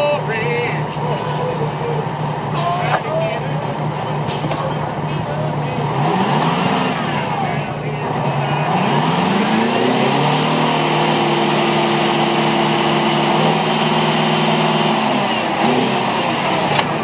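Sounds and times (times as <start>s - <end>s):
engine revving: 0.0s - 17.0s.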